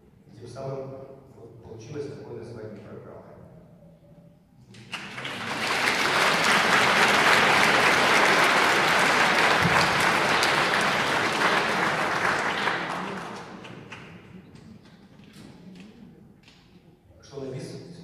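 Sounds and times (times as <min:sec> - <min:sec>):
audience applauding: 0:04.7 - 0:14.4.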